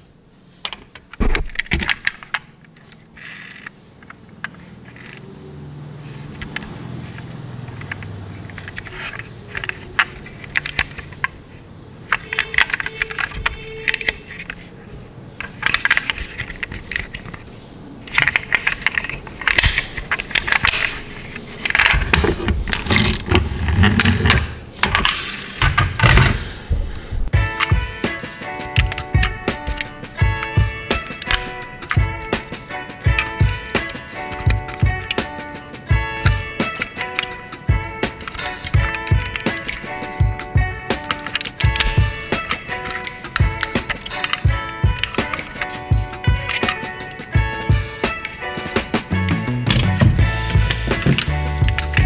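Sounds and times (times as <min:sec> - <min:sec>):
toy cars clattering together: 0:00.6 - 0:05.2, 0:06.0 - 0:14.8, 0:15.4 - 0:26.5, 0:27.4 - 0:52.0
toy car doors clicking: 0:00.7 - 0:05.3, 0:06.0 - 0:14.8, 0:15.4 - 0:26.5, 0:27.4 - 0:52.0
small metal and plastic taps: 0:07.7 - 0:11.4, 0:12.1 - 0:14.6, 0:27.6 - 0:37.4, 0:38.0 - 0:52.0.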